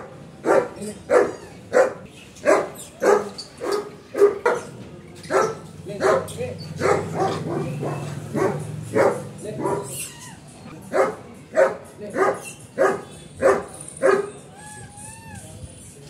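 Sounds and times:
dog barking: 0:00.0 - 0:04.7, 0:05.3 - 0:10.0, 0:10.8 - 0:14.4.

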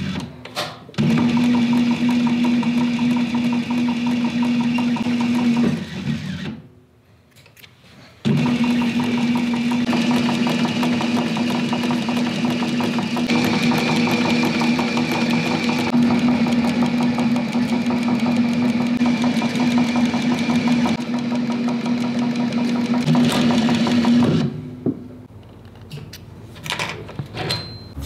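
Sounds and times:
sewing machine hum: 0:01.0 - 0:06.3, 0:08.3 - 0:24.5.

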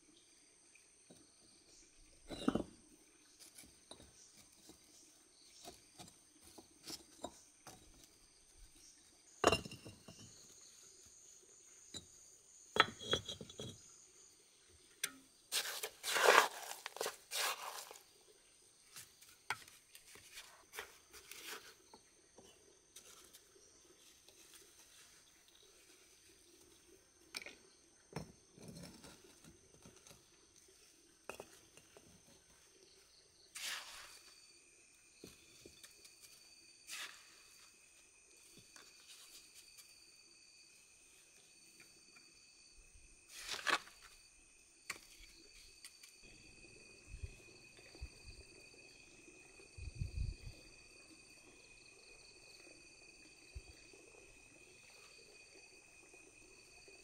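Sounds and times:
bricks clinking and scraping: 0:02.2 - 0:02.8, 0:03.4 - 0:04.8, 0:05.6 - 0:08.2, 0:09.4 - 0:10.5, 0:11.8 - 0:13.9, 0:15.0 - 0:18.1, 0:27.4 - 0:30.3, 0:31.2 - 0:32.2.

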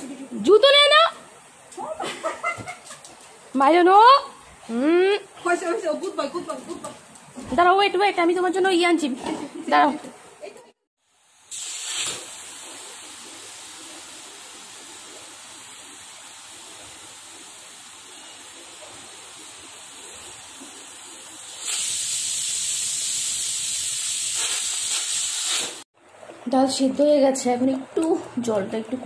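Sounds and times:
pressure cooker hissing steam: 0:11.4 - 0:13.7, 0:21.4 - 0:25.8.

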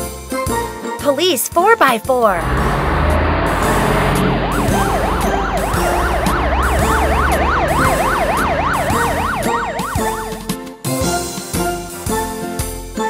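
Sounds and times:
police siren yelping: 0:02.4 - 0:10.6.

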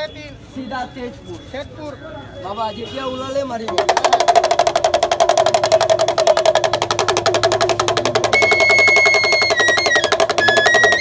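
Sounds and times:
fast rattling drum beat: 0:03.6 - 0:11.0
high piping melody: 0:08.2 - 0:11.0.

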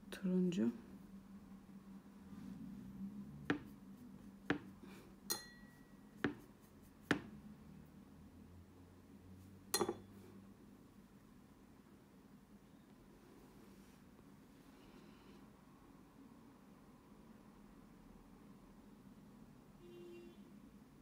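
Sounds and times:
paintbrush clinking against dish: 0:05.3 - 0:06.4, 0:09.8 - 0:10.1.

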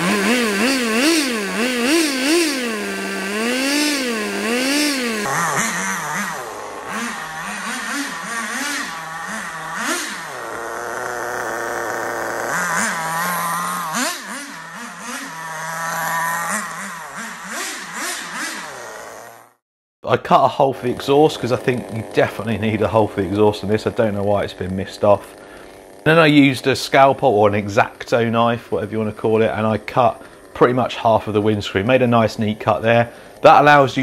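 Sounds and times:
nitro engine revving: 0:00.0 - 0:19.6, 0:20.8 - 0:34.0.

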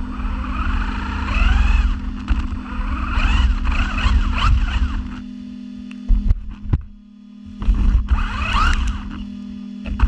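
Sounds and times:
toy car motor whining: 0:00.0 - 0:05.2, 0:08.0 - 0:09.2
steady low hum: 0:00.0 - 0:10.0.

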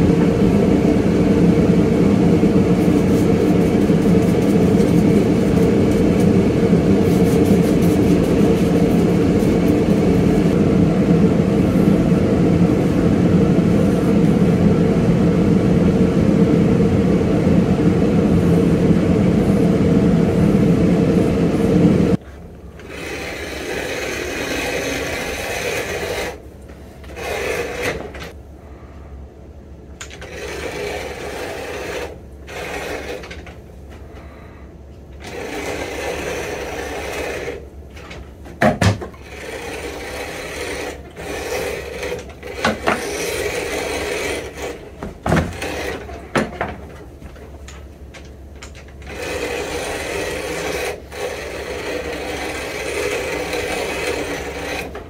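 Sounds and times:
loud machine hum: 0:00.0 - 0:29.0, 0:29.9 - 0:38.3, 0:39.0 - 0:55.0
rotary cutter slicing leather: 0:39.2 - 0:46.2, 0:49.1 - 0:55.0.

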